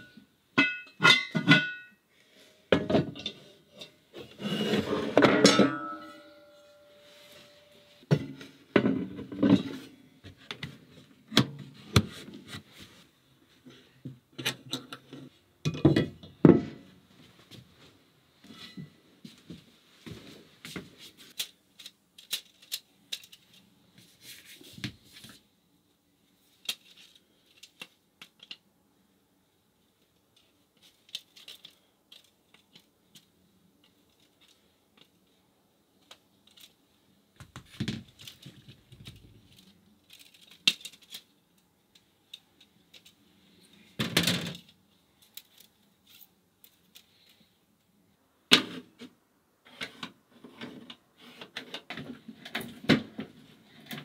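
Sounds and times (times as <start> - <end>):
cast iron pots clunking: 0.6 - 1.9, 5.1 - 6.1.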